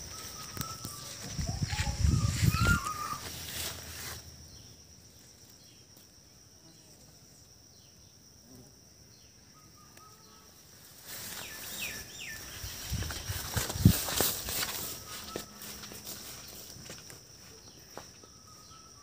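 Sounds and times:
bird chirps: 0.0 - 3.2, 17.6 - 19.0
rustling of leaves and grass: 0.0 - 5.6, 10.6 - 18.8
high-pitched insect drone: 0.0 - 19.0.

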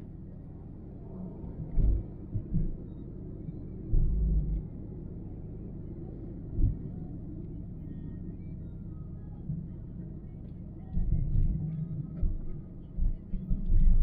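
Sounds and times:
road and engine rumble: 0.0 - 14.0.

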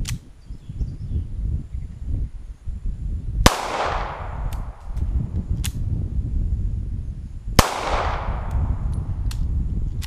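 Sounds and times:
steady low rumble: 2.7 - 10.0
pistol shot: 3.5 - 4.9, 7.6 - 8.8.

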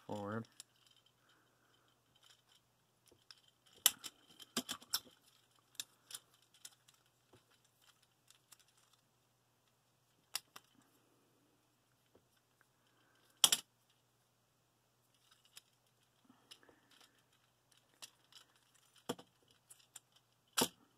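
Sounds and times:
plastic toy parts clicking: 2.1 - 9.0, 10.2 - 10.8, 15.2 - 20.8.

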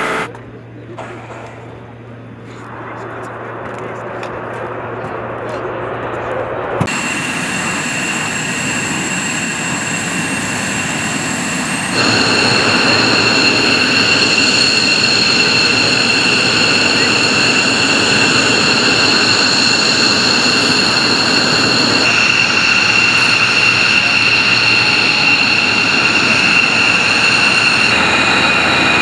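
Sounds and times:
jet engine turbine whine: 0.0 - 0.3, 1.0 - 29.0
loud rushing noise: 6.6 - 29.0.

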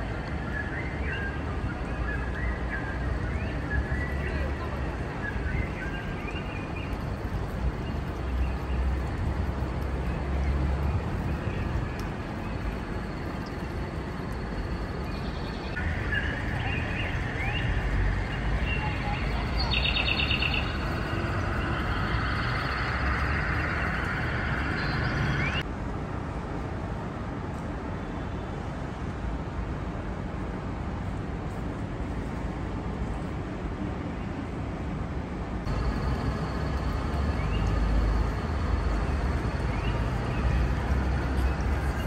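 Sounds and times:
steady low rumble: 4.9 - 25.7, 35.5 - 42.0
birds chirping: 14.5 - 25.6, 35.7 - 42.0.

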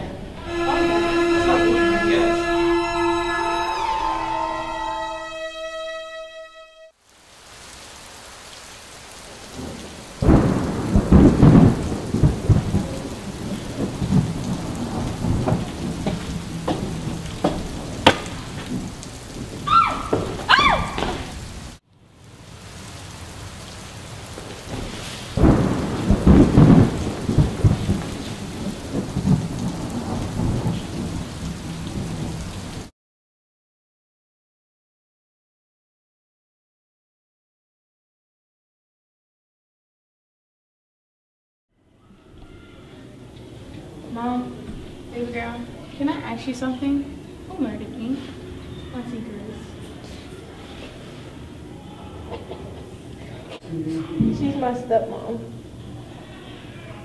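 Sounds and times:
rain hiss: 0.2 - 5.8, 7.0 - 32.9, 42.0 - 57.0
rolling thunder: 9.1 - 21.8, 22.5 - 32.9
sharp thunder cracks: 9.5 - 21.6, 24.6 - 32.9.

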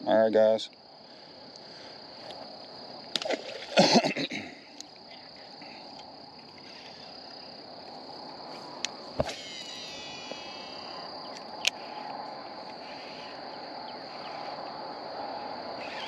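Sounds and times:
insects chirring: 0.0 - 16.0
splash in water: 3.1 - 4.0.

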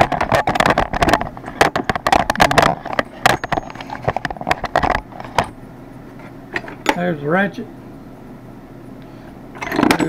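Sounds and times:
metal tools clattering in a drawer: 1.8 - 5.6, 9.6 - 10.0.

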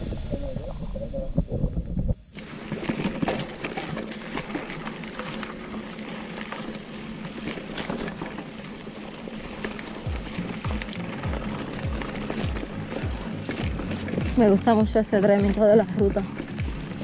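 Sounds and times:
bike tyres on gravel: 0.0 - 17.0
clicks and rattles of stones: 2.4 - 14.4.

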